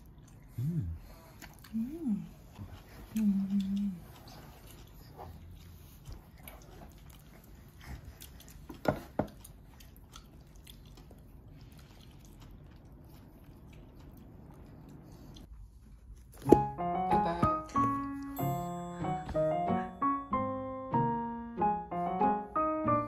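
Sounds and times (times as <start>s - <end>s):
chewing and biting food: 0.0s - 16.6s.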